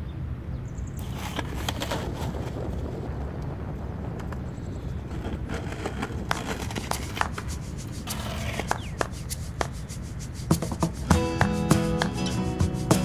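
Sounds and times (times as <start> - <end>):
skateboard clicks: 1.0 - 2.7, 5.0 - 12.4
skateboard wheels rumbling on concrete: 1.0 - 13.0
hand strikes on cajon: 8.6 - 13.0
guitar notes: 11.0 - 13.0.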